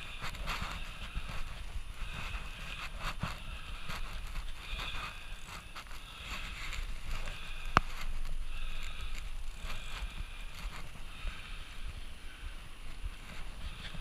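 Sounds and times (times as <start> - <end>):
bicycle rolling noise: 0.0 - 14.0
wind rumble on microphone: 0.0 - 14.0.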